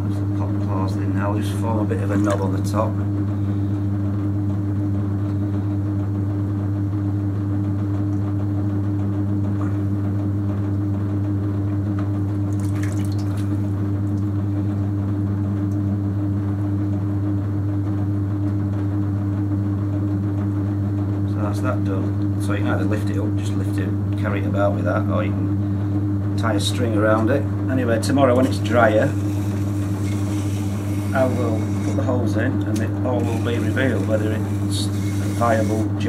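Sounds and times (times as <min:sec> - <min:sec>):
potter's wheel motor hum: 0:00.0 - 0:36.0
hands working wet clay: 0:01.4 - 0:02.8, 0:28.0 - 0:36.0.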